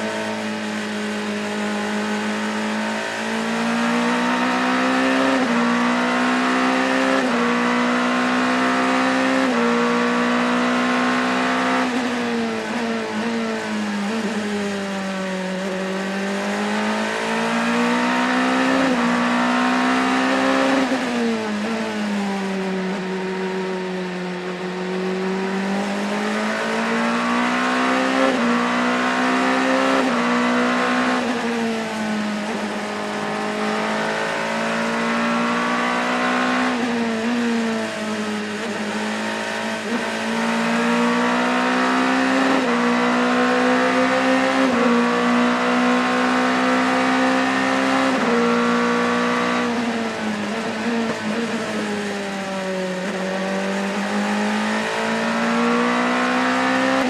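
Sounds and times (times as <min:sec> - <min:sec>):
racing engine under full load: 0:00.0 - 0:57.0.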